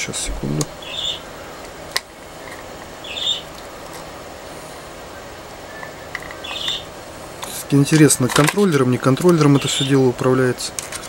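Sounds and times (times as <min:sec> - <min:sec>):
steady low hiss: 0:00.0 - 0:11.0
plastic scraping: 0:07.4 - 0:09.6.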